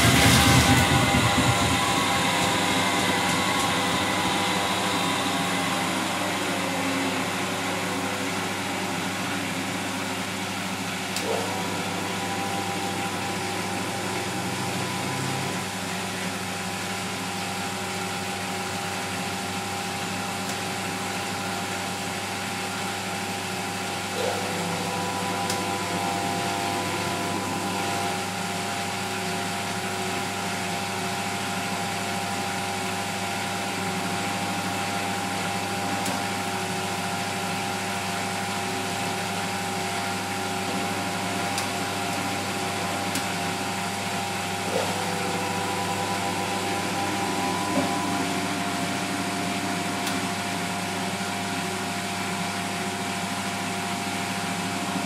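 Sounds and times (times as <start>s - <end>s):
washing machine drum tumbling: 0.0s - 6.2s
washing machine motor whine: 0.0s - 55.0s.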